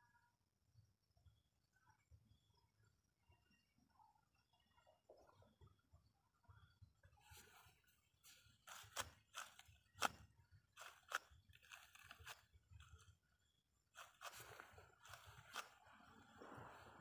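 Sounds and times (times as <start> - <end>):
monkey chewing crisp crunches: 8.3 - 13.1, 13.9 - 16.5.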